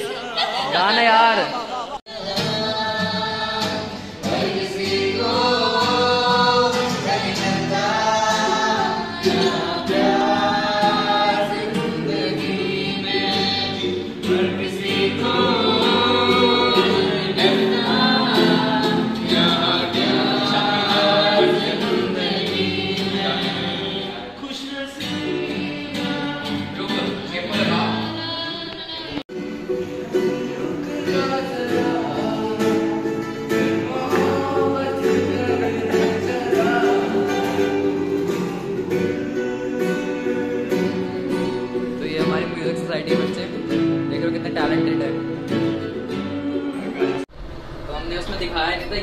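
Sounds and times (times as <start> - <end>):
group of voices singing: 0.0 - 43.2, 45.3 - 47.4
acoustic guitar: 0.0 - 49.0.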